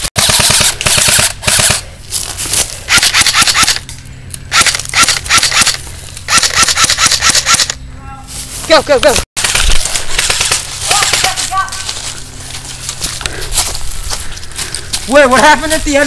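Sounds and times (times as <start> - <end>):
airsoft rifles firing full-auto: 0.1 - 1.9, 2.9 - 3.8, 4.5 - 7.8.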